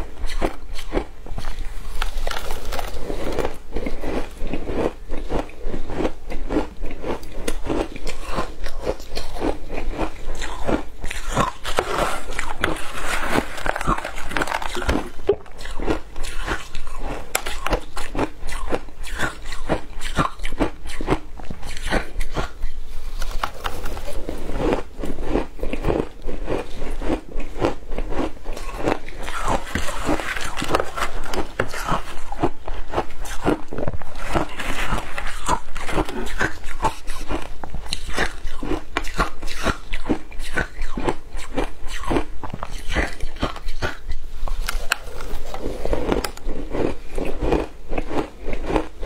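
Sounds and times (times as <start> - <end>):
crunching shaved ice: 0.4 - 21.1.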